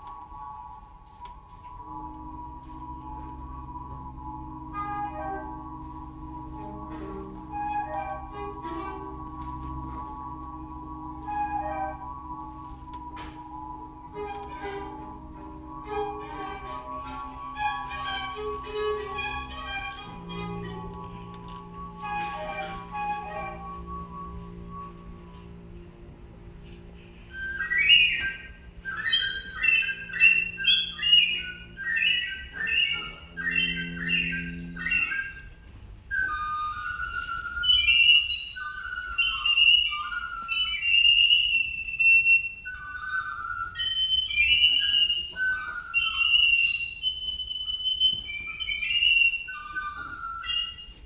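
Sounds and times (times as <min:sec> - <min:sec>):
low sustained accompaniment note: 0:00.0 - 0:51.0
gliding warbling calls: 0:01.8 - 0:51.0
bird-like chirps and whistles: 0:27.2 - 0:51.0.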